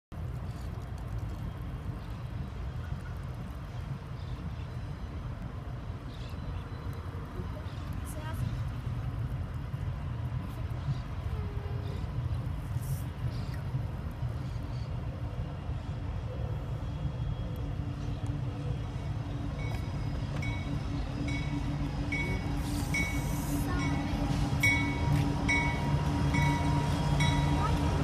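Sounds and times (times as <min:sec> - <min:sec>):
diesel locomotive engine hum: 0:00.1 - 0:28.0
locomotive bell ringing: 0:19.6 - 0:28.0.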